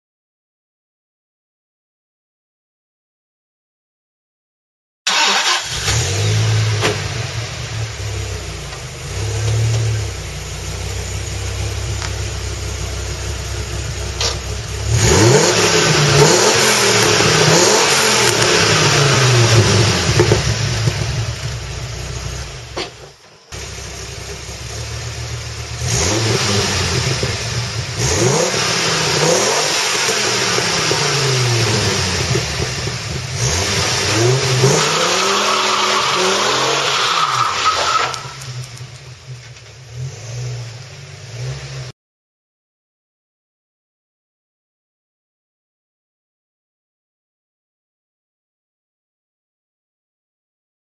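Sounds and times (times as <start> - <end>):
sports car engine revving: 5.1 - 22.8, 23.5 - 41.9.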